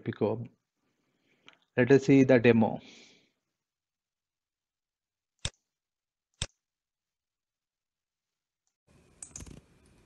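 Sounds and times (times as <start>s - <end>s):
computer mouse clicks: 6.4s - 6.6s, 9.2s - 10.0s.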